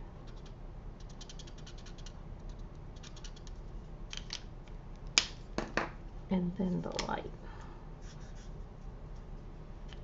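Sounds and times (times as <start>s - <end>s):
marker scratching on cardstock: 0.3s - 3.5s.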